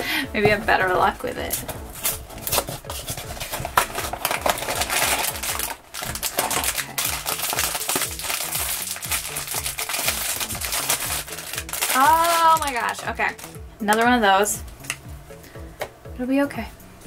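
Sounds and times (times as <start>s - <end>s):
quiet background music: 0.0s - 17.0s
foil bag crinkling: 2.0s - 13.6s.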